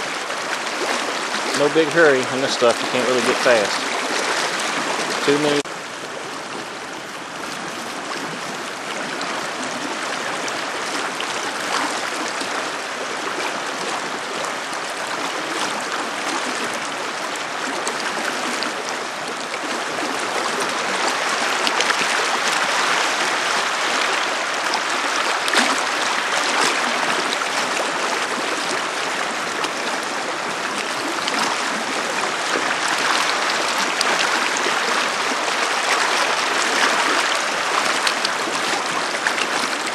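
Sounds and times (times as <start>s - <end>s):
river water rushing over rocks: 0.0s - 39.9s.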